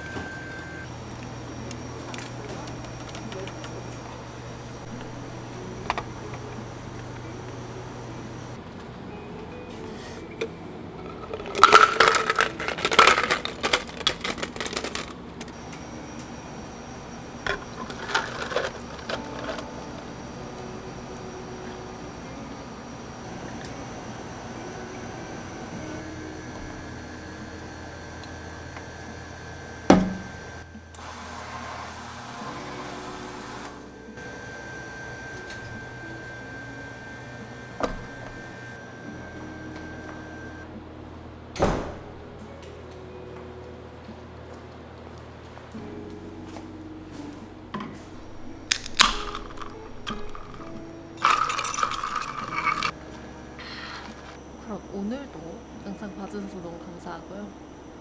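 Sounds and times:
can sealer mechanical whirr: 0:00.0 - 0:08.6, 0:11.1 - 0:40.7, 0:48.1 - 0:53.0
ice cubes clattering into cup: 0:11.1 - 0:15.2, 0:17.5 - 0:19.6, 0:48.7 - 0:53.0
tea draining over ice: 0:48.7 - 0:52.9.

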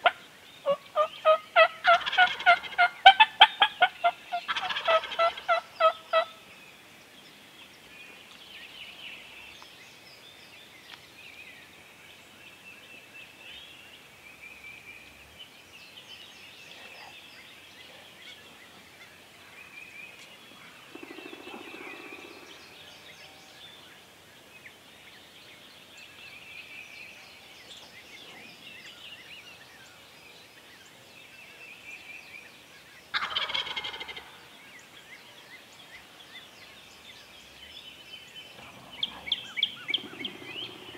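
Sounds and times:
turkey gobbling: 0:00.0 - 0:06.3, 0:33.1 - 0:34.3
small birds chirping: 0:00.0 - 0:40.9.

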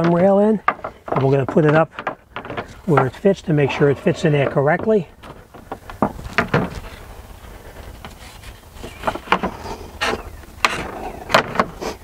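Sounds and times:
knocks and clicks of railing: 0:00.0 - 0:03.3, 0:04.3 - 0:06.9.

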